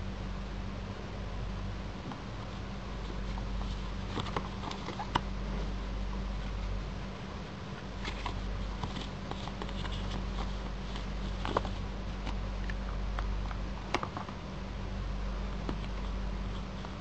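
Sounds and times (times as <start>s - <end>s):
steady low hum: 0.0s - 17.0s
paper rustling: 2.1s - 12.7s.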